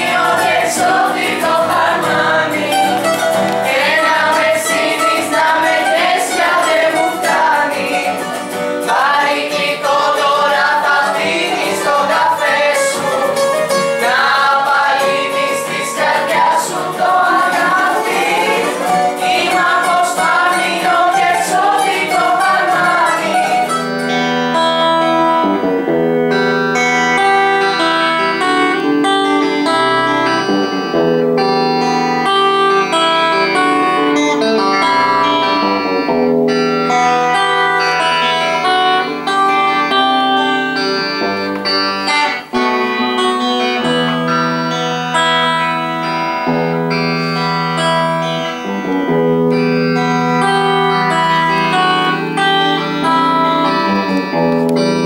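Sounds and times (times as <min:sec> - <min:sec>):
group singing together: 0:00.0 - 0:23.9
bouzouki: 0:00.0 - 0:55.0
solo electric guitar melody: 0:00.0 - 0:55.0
strummed acoustic guitar: 0:00.0 - 0:55.0.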